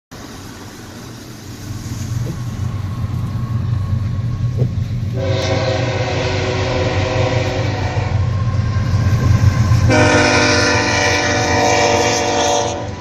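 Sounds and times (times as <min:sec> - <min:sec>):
diesel locomotives rumbling: 0:00.1 - 0:13.0
train air horn chord: 0:05.1 - 0:08.4, 0:09.8 - 0:13.0.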